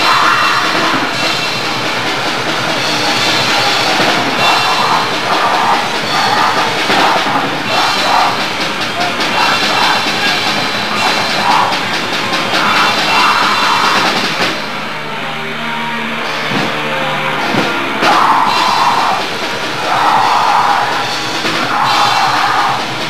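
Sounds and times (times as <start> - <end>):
drum kit: 0.0 - 15.4, 16.0 - 23.0
bass guitar: 0.0 - 23.0
distorted guitar: 0.0 - 23.0
person yelling vocals: 4.3 - 11.9, 12.5 - 14.3, 18.0 - 21.0, 21.6 - 22.9.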